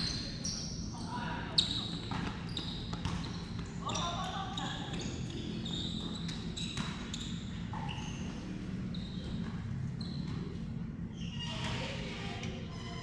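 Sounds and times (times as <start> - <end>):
low hum of large hall: 0.0 - 13.0
sneaker squeaks: 0.0 - 13.0
basketball bouncing on wooden floor: 2.0 - 3.6.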